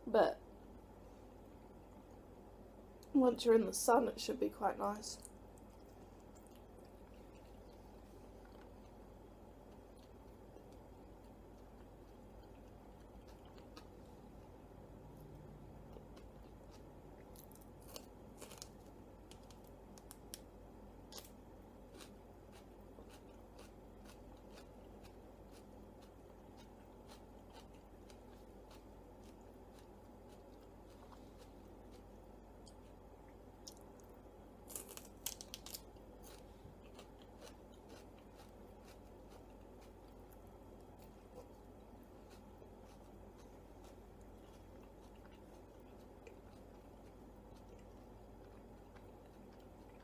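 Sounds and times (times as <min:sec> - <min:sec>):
close-up chewing: 0:05.2 - 0:20.2, 0:21.1 - 0:50.0.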